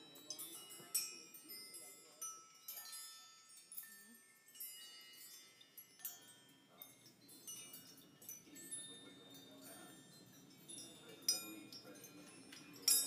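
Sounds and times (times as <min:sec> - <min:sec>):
metal rings clinking like chimes: 0:00.0 - 0:13.0.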